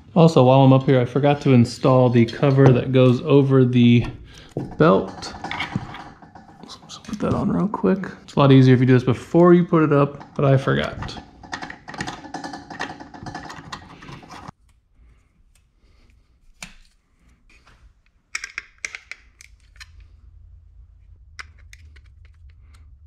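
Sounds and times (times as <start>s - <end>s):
plastic clicks and rattles: 10.1s - 14.5s, 18.3s - 20.1s.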